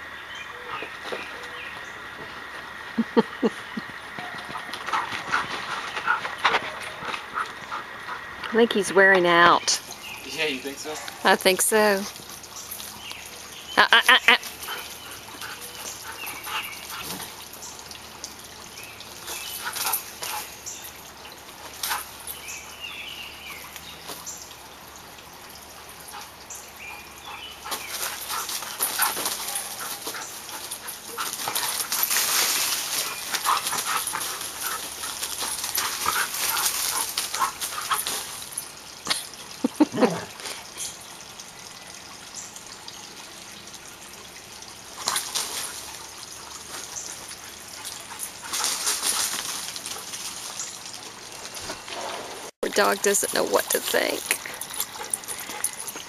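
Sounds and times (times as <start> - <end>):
scuffling in bark mulch: 27.7 - 38.5
dog vocalizing during play: 39.2 - 41.0.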